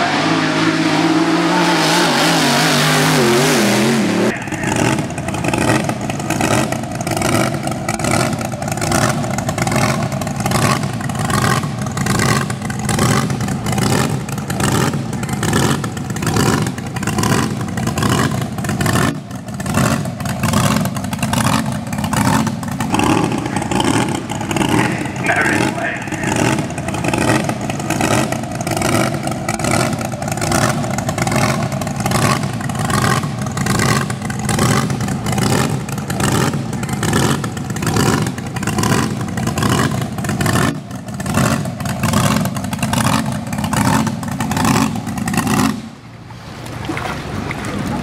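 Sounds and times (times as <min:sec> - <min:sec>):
racing boat engine roaring: 0:00.0 - 0:48.0.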